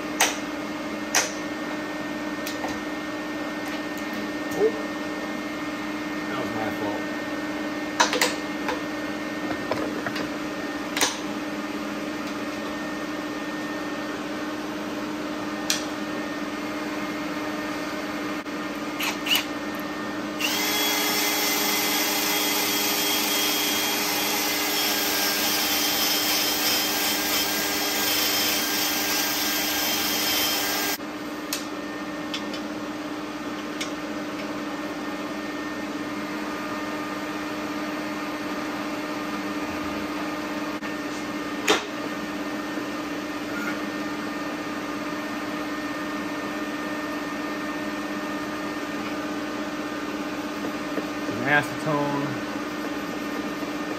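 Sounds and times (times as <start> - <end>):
shop hum: 0.0 - 53.9
cordless drill running: 19.0 - 19.5, 20.4 - 31.0.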